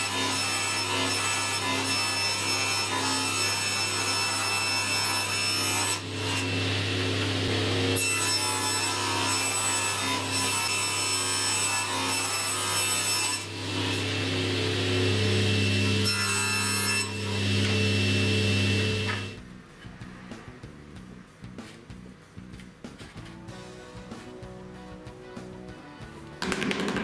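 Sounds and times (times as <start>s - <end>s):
table saw cutting board: 0.0s - 19.4s, 26.4s - 27.0s.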